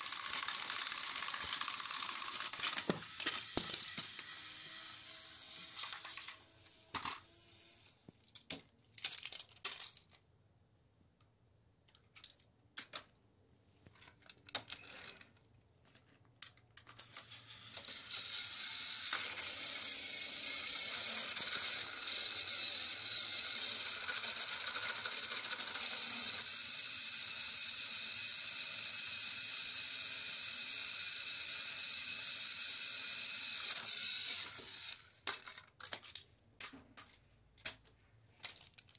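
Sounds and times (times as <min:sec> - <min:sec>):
toy trains clattering on plastic track: 0:00.0 - 0:07.3, 0:08.2 - 0:10.2, 0:11.9 - 0:13.2, 0:13.8 - 0:38.9
toy train motors whirring: 0:00.0 - 0:10.2, 0:14.0 - 0:38.9.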